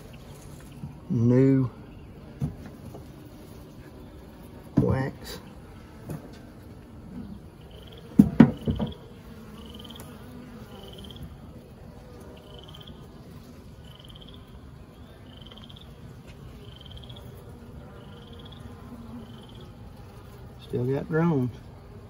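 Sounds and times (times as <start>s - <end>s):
honeybees humming: 0.0s - 22.0s
wooden hive frames knocking: 2.2s - 3.3s, 4.6s - 5.3s, 5.9s - 11.2s.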